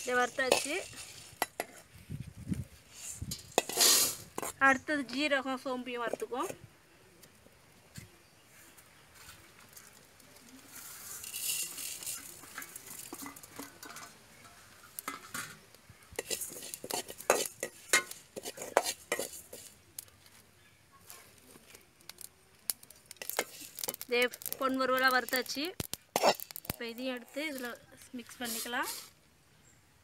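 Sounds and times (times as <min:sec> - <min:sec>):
seeds hissing in a pan: 0:00.0 - 0:01.6, 0:02.8 - 0:04.7, 0:09.6 - 0:20.3, 0:21.6 - 0:29.2
spoon scraping a metal pan: 0:00.0 - 0:01.9, 0:02.9 - 0:04.6, 0:11.0 - 0:19.8, 0:23.2 - 0:24.6, 0:26.1 - 0:29.1.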